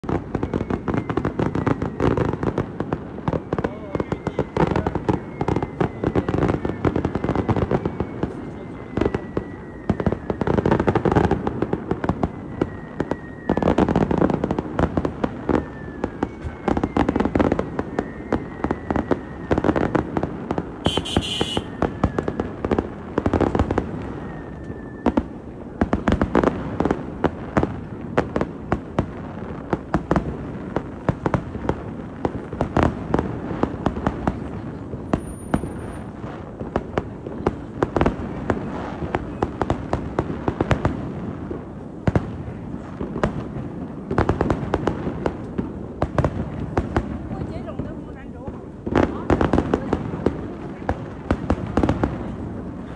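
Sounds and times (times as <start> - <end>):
falling firework whistles: 0.0 - 25.7, 34.4 - 36.6
fireworks booms: 0.0 - 52.9
fireworks crackling pops: 0.0 - 52.9.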